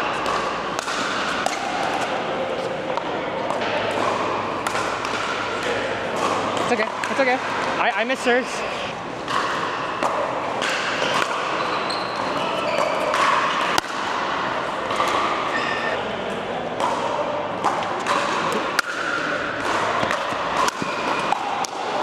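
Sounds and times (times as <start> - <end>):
background talk and play: 1.3 - 22.0
ball bouncing: 2.9 - 8.2, 17.6 - 21.9.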